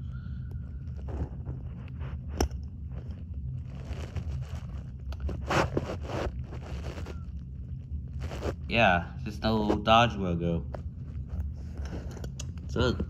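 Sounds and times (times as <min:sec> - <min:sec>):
steady low hum: 0:00.0 - 0:13.0
fingers rubbing near microphone: 0:00.9 - 0:07.4, 0:08.0 - 0:08.7.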